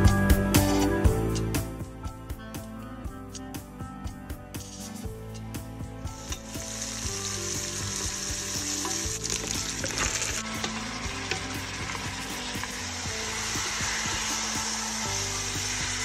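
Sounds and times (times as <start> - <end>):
meat and onion sizzling in oil: 6.0 - 16.0
wooden spoon knocking and scraping pot: 8.2 - 12.7.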